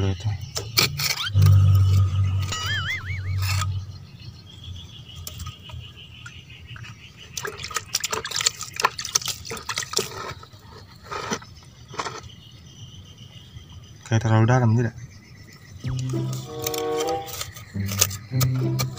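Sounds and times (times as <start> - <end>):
water splashing onto soil: 7.4 - 10.0.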